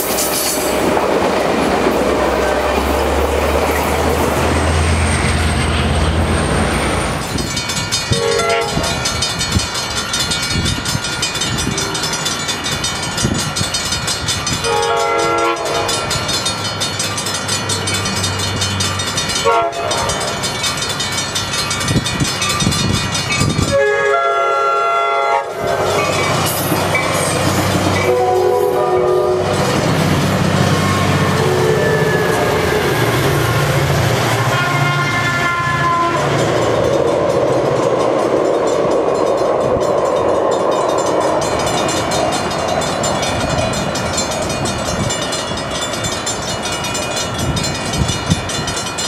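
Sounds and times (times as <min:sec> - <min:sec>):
diesel locomotive rumbling past: 0:00.0 - 0:49.0
steady high ringing: 0:04.5 - 0:23.8, 0:36.3 - 0:49.0
train horn blasts: 0:08.1 - 0:09.0, 0:14.6 - 0:16.1, 0:19.4 - 0:20.3, 0:23.6 - 0:25.8, 0:28.0 - 0:29.6, 0:30.8 - 0:32.8, 0:34.3 - 0:36.4.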